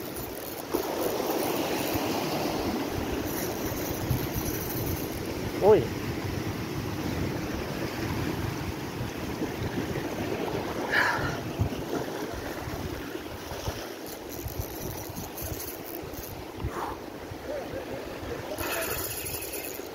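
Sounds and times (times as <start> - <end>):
wind buffeting microphone: 1.8 - 19.8
faint rapid ticking: 3.2 - 5.4, 14.0 - 16.4, 18.6 - 19.9.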